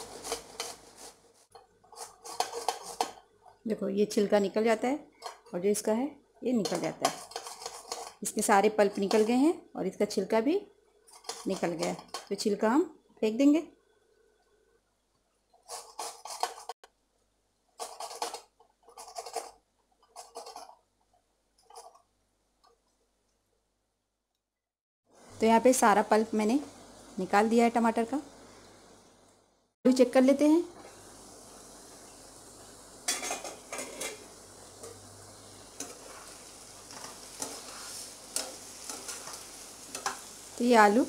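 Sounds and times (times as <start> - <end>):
metal spatula scraping in pan: 0.0 - 3.2, 6.6 - 9.5, 11.1 - 12.4, 15.6 - 16.8, 17.8 - 20.8, 33.0 - 41.0
faint sizzle: 0.0 - 14.8, 25.1 - 41.0
tomato scraping on grater: 1.9 - 3.1, 7.0 - 8.2, 15.6 - 16.8.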